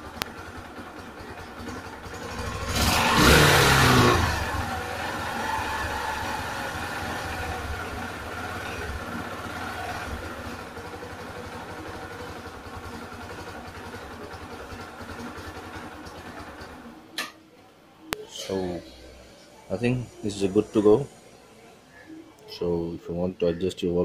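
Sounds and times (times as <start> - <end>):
motorcycle engine idling: 0.0 - 17.1.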